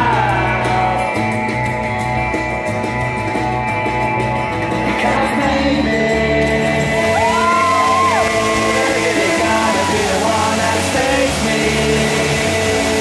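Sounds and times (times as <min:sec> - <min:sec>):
music playing: 0:00.0 - 0:13.0
spark fountains hissing: 0:06.4 - 0:13.0
guests whooping and cheering: 0:06.9 - 0:11.4.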